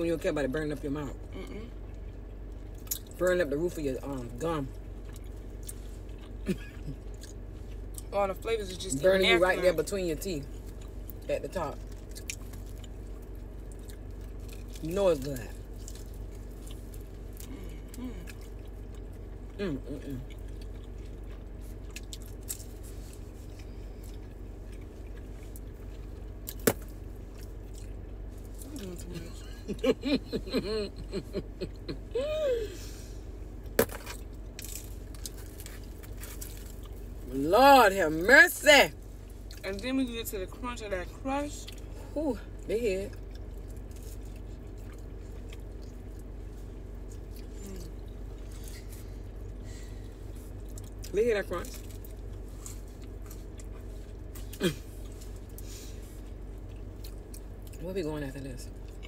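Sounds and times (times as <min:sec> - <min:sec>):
steady low hum: 0:00.0 - 0:59.0
person chewing food: 0:04.9 - 0:08.1, 0:10.6 - 0:28.8, 0:33.6 - 0:37.2, 0:43.1 - 0:51.1, 0:51.7 - 0:57.8.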